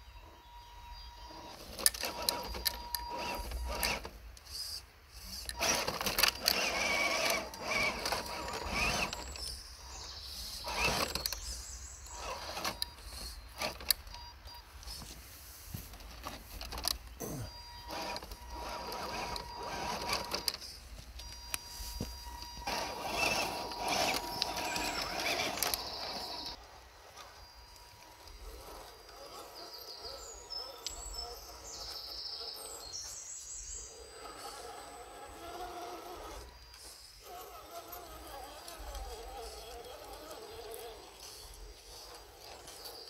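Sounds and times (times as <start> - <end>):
small electric motor whining: 0.1 - 43.0
clicks and scrapes: 17.9 - 26.6.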